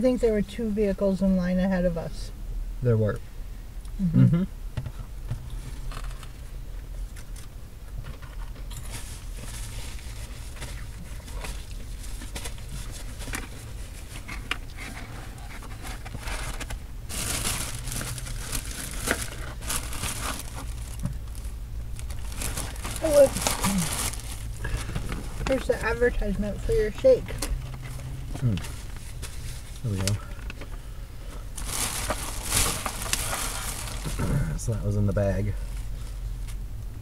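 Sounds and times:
steady low hum: 0:00.0 - 0:37.0
paper wrapper crinkling: 0:14.8 - 0:25.8, 0:31.6 - 0:34.4.

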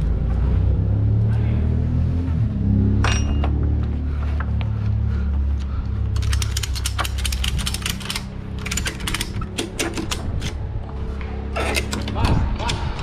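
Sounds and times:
low hum: 0:00.0 - 0:13.0
ratchet strap clicking: 0:06.1 - 0:10.6.

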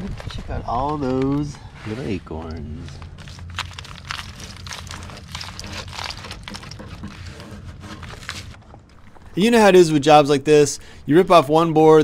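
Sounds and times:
acorns spilling and clicking: 0:03.1 - 0:07.2.

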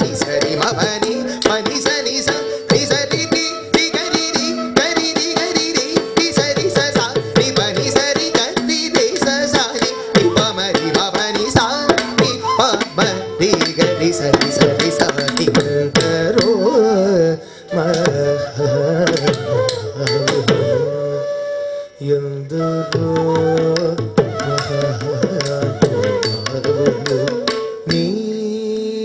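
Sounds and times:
fast hand-drum strokes: 0:00.0 - 0:16.7, 0:23.6 - 0:28.1.

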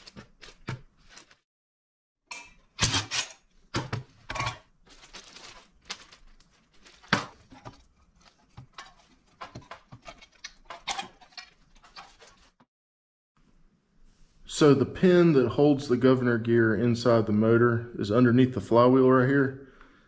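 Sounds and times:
parts clattering on metal workbench: 0:02.3 - 0:04.7.

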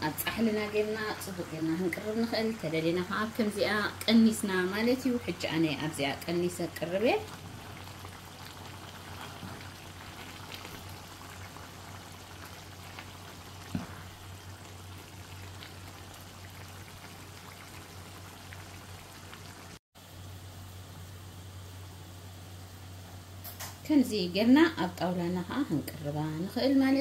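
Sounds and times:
stew bubbling in pan: 0:00.0 - 0:19.8
ladle scooping and pouring: 0:07.2 - 0:18.8.

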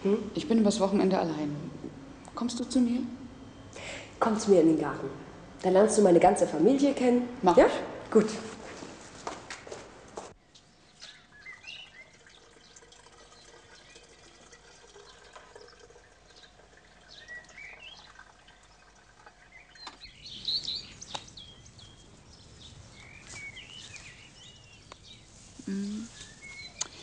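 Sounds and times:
small birds chirping: 0:10.4 - 0:27.0.

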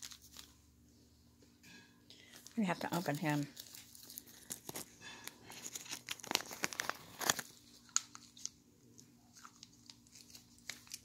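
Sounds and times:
plastic bag crinkling: 0:00.0 - 0:00.6, 0:02.3 - 0:08.6, 0:09.3 - 0:11.0.

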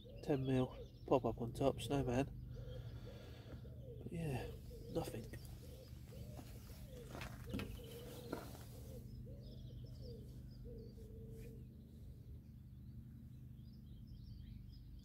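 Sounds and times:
small birds chirping: 0:00.0 - 0:15.0
pigeon cooing: 0:02.4 - 0:11.7.

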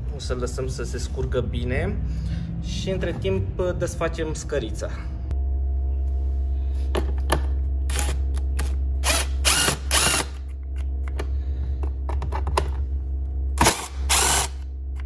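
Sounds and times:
steady low hum: 0:00.0 - 0:15.0
cordless drill spinning bursts: 0:09.0 - 0:10.4, 0:13.7 - 0:14.6.

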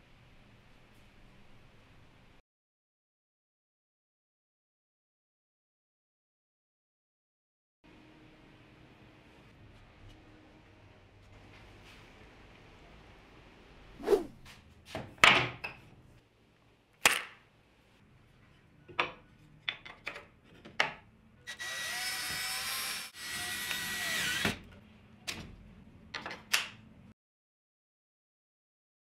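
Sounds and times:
wooden pieces knocking: 0:19.0 - 0:21.0
power tool whirring: 0:21.5 - 0:24.6.

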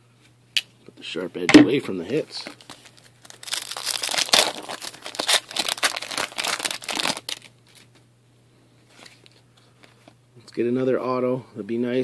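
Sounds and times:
foil wrapper tearing and crinkling: 0:02.4 - 0:08.0.

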